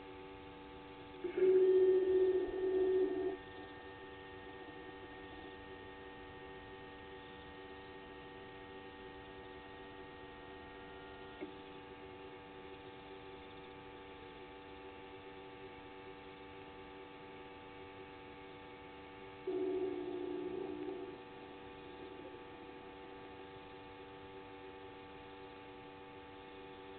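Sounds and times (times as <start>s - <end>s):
steady electrical hum: 0.0s - 26.9s.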